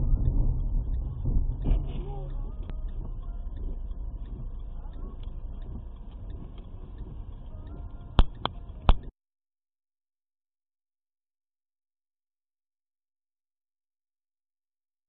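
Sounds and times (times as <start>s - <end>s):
car radio playing faintly: 0.0s - 9.1s
low rumble inside car cabin: 0.0s - 9.1s
sharp clicks: 0.2s - 9.1s.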